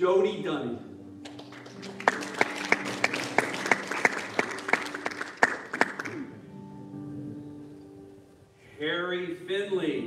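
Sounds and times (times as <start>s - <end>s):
loud distinct claps: 1.2s - 6.2s
congregation applauding: 1.2s - 6.5s.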